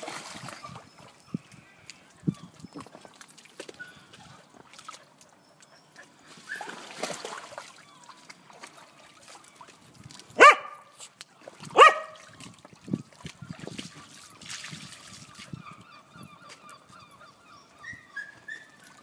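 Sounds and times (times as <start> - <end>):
dogs wading in water: 0.0 - 19.0
dog barking: 10.4 - 10.9, 11.8 - 12.2.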